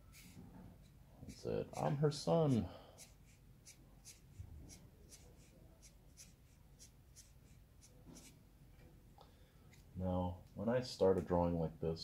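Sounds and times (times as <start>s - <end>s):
marker scratching on paper: 0.0s - 8.4s.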